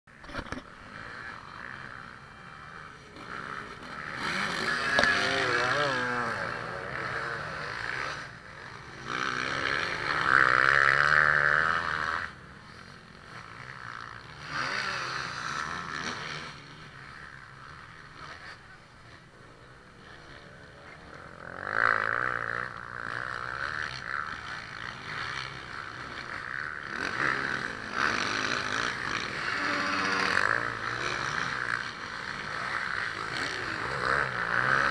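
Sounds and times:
dirt bike engines revving: 0.1s - 34.9s.

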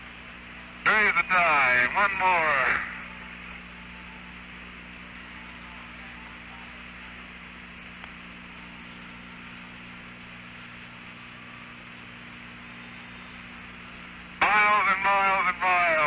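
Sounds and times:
radio hiss and hum: 0.0s - 16.0s
faint click: 8.0s - 8.2s.

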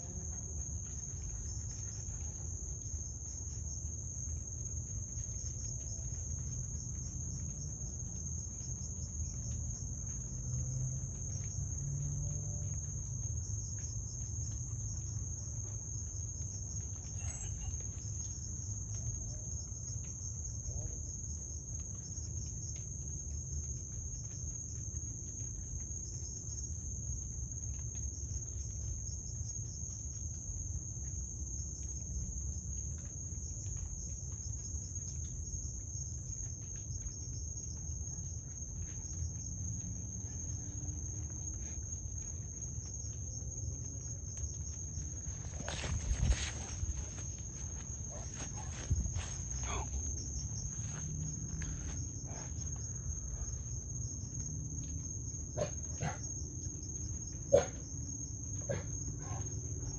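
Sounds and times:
crickets trilling: 0.0s - 59.9s.

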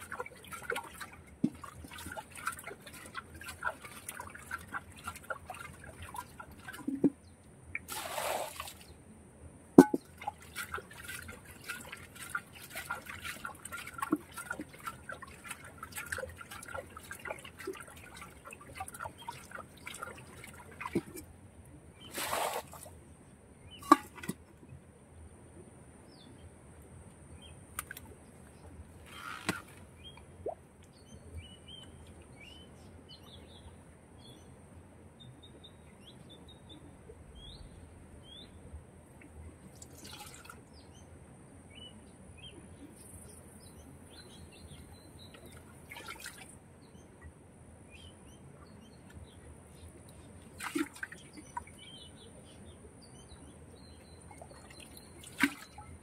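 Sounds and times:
muddy water splashing: 0.0s - 9.0s, 9.8s - 21.3s, 22.0s - 23.0s, 23.8s - 24.5s, 29.0s - 30.6s, 39.6s - 40.6s, 44.1s - 46.6s, 50.0s - 52.3s, 53.2s - 56.0s
small birds chirping: 27.4s - 34.5s, 41.7s - 46.0s, 51.0s - 55.9s.

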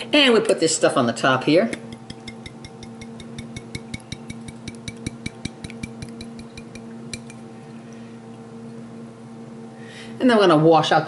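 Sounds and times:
steady low hum: 0.0s - 11.0s
glass jar tapping: 1.7s - 7.4s.

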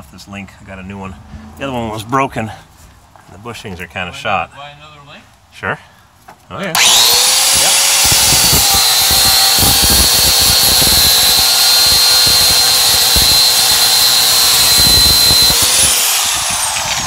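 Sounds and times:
angle grinder cutting steel: 6.7s - 17.0s.

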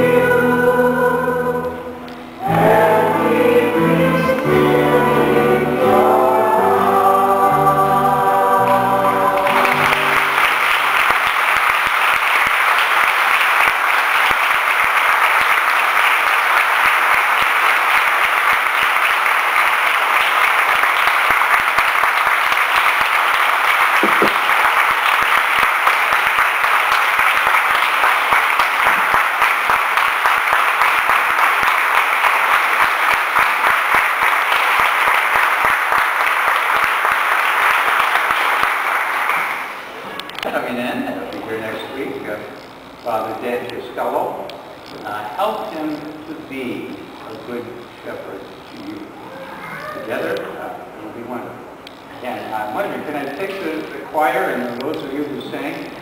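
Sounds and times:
choir singing: 0.0s - 11.1s
steady applause: 8.6s - 40.5s.

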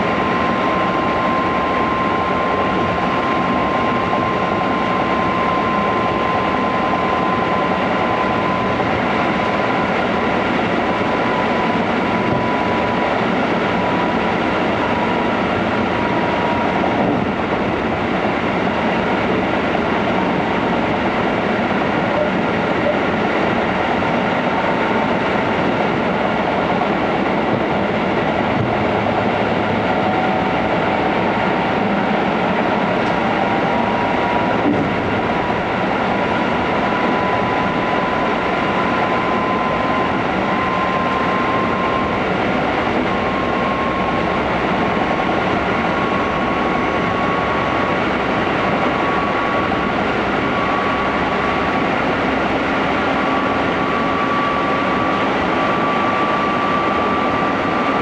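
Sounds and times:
train rolling rumble: 0.0s - 58.0s.

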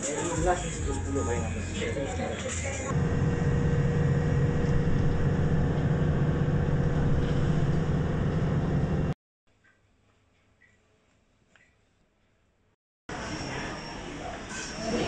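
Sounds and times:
moving bus engine and road noise: 2.4s - 9.2s.

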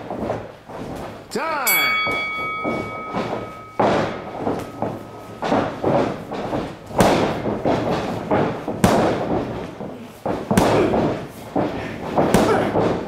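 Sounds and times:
feet scuffling: 0.0s - 13.0s
boxing glove punches smacking: 2.6s - 13.0s.

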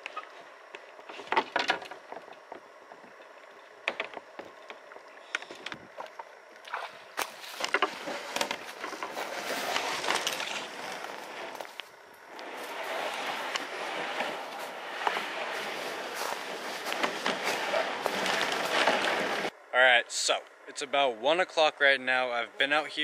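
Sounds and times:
water swishing: 12.4s - 19.5s.

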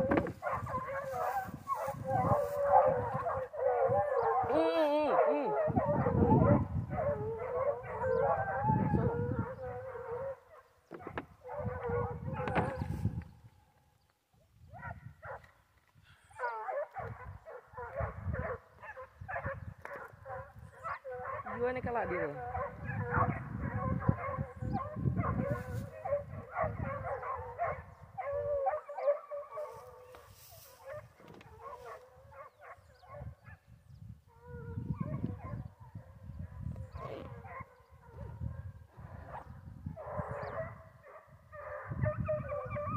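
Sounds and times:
foxhounds baying: 0.0s - 12.9s, 16.3s - 33.6s, 36.9s - 42.9s.

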